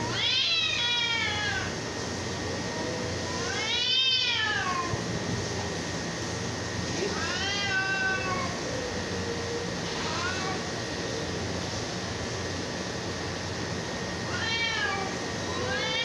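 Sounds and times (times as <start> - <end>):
cats yowling: 0.0 - 5.1, 6.9 - 11.4, 14.2 - 16.0.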